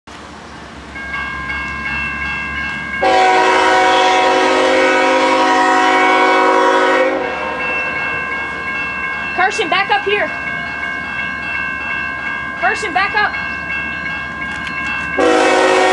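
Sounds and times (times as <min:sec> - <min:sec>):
crossing warning bell ringing: 0:00.6 - 0:15.9
locomotive horn blast: 0:03.0 - 0:07.7, 0:15.2 - 0:15.9.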